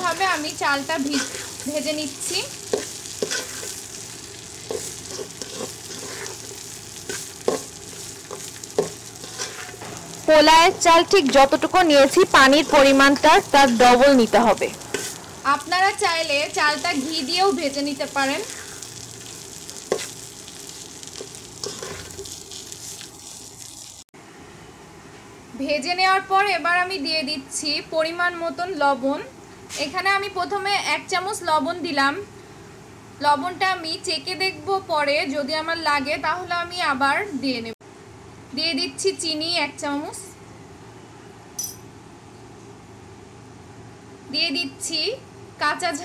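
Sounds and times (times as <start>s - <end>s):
rice sizzling in oil: 0.0s - 24.1s
spatula scraping and knocking pot: 1.0s - 1.7s, 2.3s - 3.8s, 4.6s - 10.1s, 19.9s - 20.1s, 21.2s - 22.4s.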